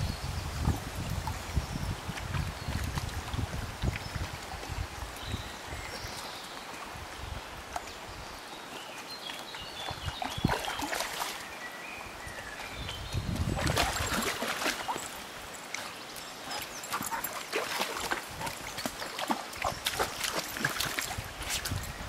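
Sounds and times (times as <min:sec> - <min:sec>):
stream flowing: 0:00.0 - 0:22.0
dogs splashing through water: 0:08.7 - 0:11.6, 0:12.4 - 0:22.0.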